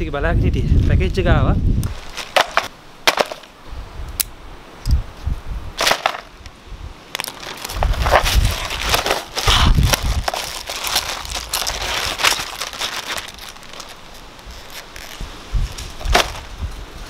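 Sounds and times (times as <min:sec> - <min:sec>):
plastic satchel crinkling: 0:07.2 - 0:16.5.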